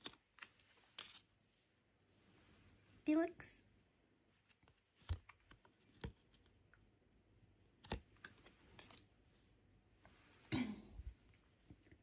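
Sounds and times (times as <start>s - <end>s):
cards clicking against cards: 0.0s - 1.2s, 4.5s - 6.5s, 7.8s - 9.1s.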